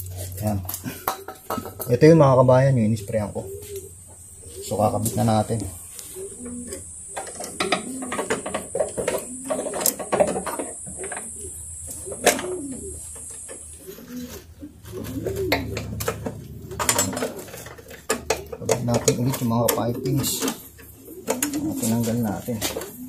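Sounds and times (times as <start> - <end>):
dove cooing: 0.0 - 23.0
metal parts clicking and knocking: 15.4 - 21.7.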